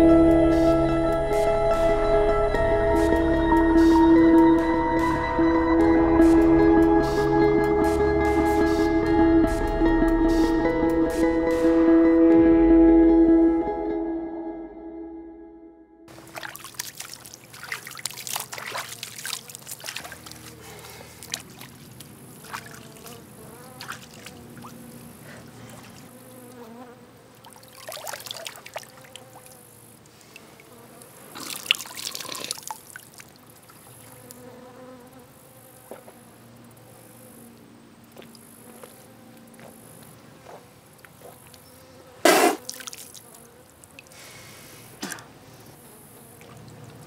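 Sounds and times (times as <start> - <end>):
flies buzzing: 0.0 - 14.7, 16.1 - 47.0
water splashing: 16.1 - 26.4, 27.4 - 34.2, 42.3 - 44.2, 46.2 - 47.0
creek water trickling: 16.1 - 26.6, 27.3 - 34.4, 37.5 - 40.0, 42.6 - 47.0
short sharp noises: 42.2 - 42.7.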